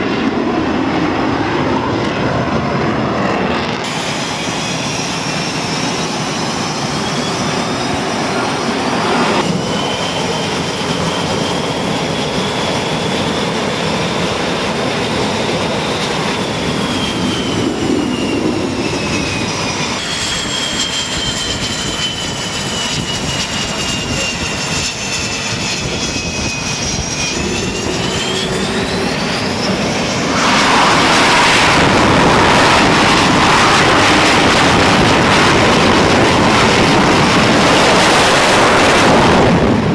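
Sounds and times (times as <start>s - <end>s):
jet engines running: 0.0s - 39.9s.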